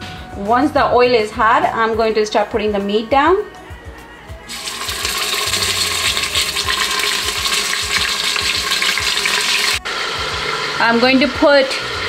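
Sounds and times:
meat sizzling in hot oil: 4.5s - 12.0s.

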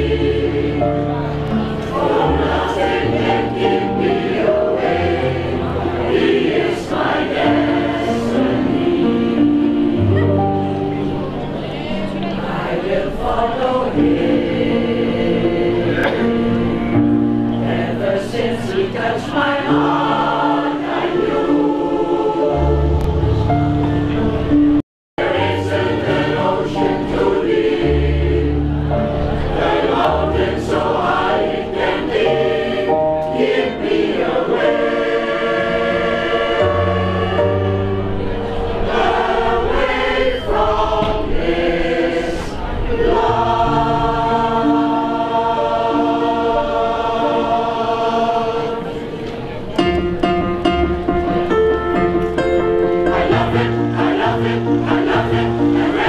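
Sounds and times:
vocal group singing in harmony: 0.0s - 24.6s, 25.2s - 49.7s, 51.8s - 56.0s
instrumental accompaniment with bass: 49.8s - 56.0s.

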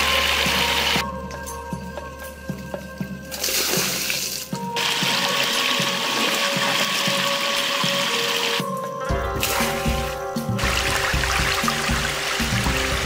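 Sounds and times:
soft background music: 0.0s - 13.0s
water splashing over rocks: 3.3s - 8.7s, 9.4s - 13.0s.

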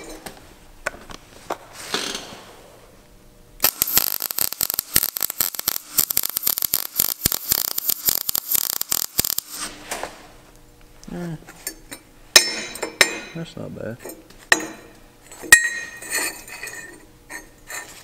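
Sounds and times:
welding arc crackling: 3.6s - 9.8s.

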